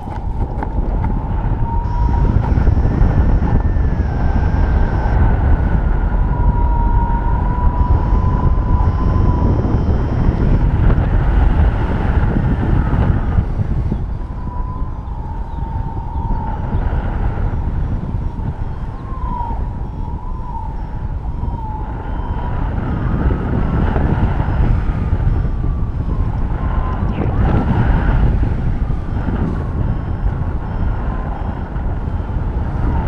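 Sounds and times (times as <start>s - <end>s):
thin wavering tone: 0.0s - 33.0s
wind buffeting microphone: 0.0s - 33.0s.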